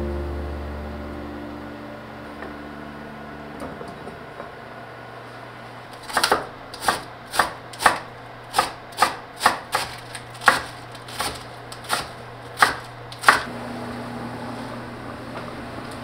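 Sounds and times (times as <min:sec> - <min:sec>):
faint steady hum: 0:00.0 - 0:09.4
knife chopping on cutting board: 0:06.0 - 0:13.5.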